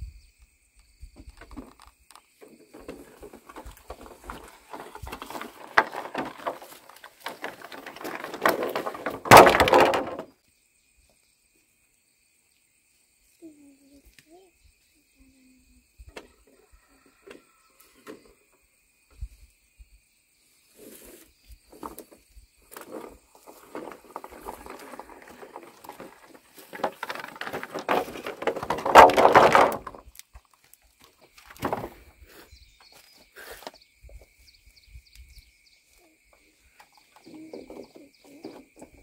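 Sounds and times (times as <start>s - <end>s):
bamboo poles knocking and clacking: 1.2s - 10.3s, 21.7s - 31.9s, 36.8s - 39.0s
rustling and scraping: 1.2s - 10.3s, 20.6s - 34.5s, 35.2s - 39.0s.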